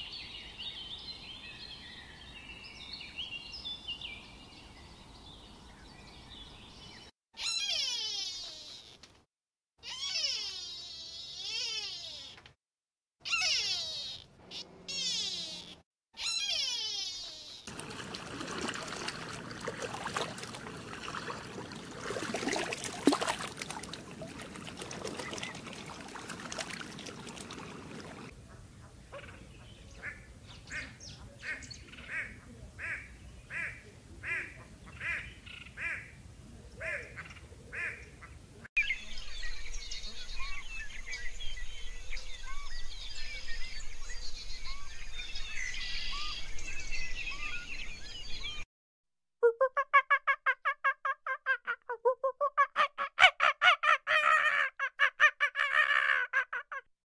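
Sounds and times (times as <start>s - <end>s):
swans calling: 13.2s - 28.3s.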